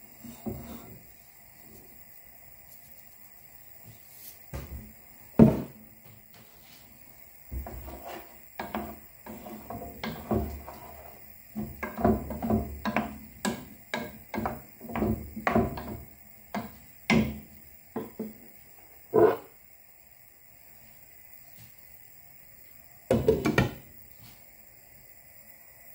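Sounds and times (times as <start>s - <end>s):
kitchen clatter knocks and bumps: 5.4s - 5.8s, 7.5s - 10.9s, 11.6s - 17.4s, 23.1s - 23.8s.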